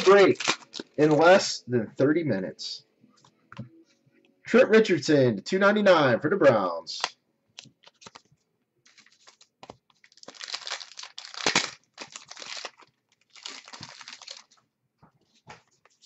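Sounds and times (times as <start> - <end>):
wrapper rustling and crinkling: 0.0 - 1.3, 7.8 - 14.6.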